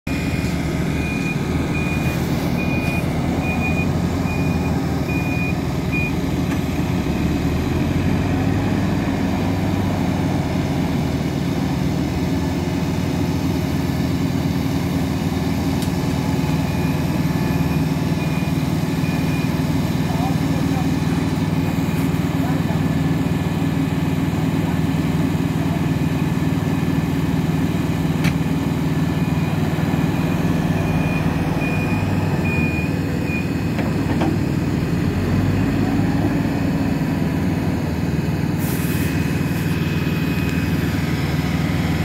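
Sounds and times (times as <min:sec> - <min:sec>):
diesel engine running: 0:00.0 - 0:42.0
reversing alarm beeps: 0:00.9 - 0:06.2, 0:16.2 - 0:19.6, 0:29.2 - 0:33.5.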